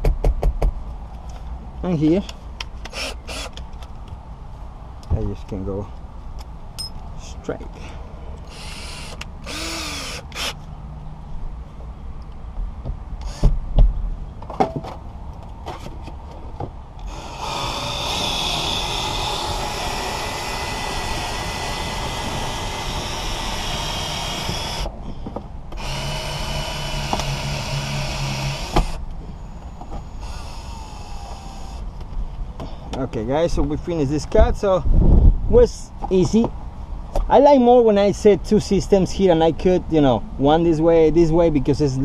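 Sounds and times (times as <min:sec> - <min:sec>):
powered winder running: 0:25.8 - 0:29.0.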